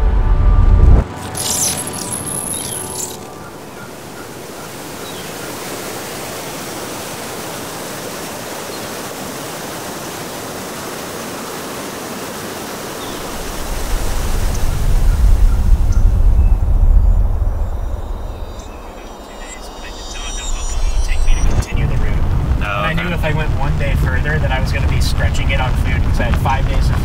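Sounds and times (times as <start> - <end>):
loud low rumble: 0.0 - 1.2, 13.4 - 27.0
waterfall rushing: 1.1 - 16.2, 18.4 - 27.0.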